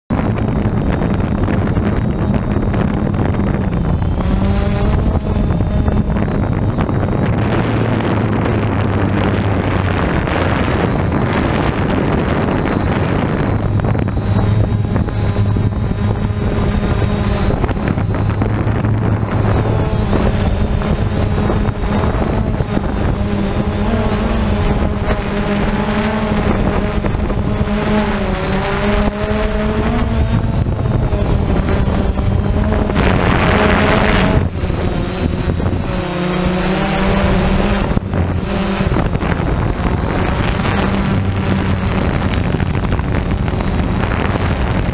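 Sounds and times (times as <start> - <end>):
wind noise on microphone: 0.0 - 44.9
drone propellers buzzing: 0.1 - 44.9.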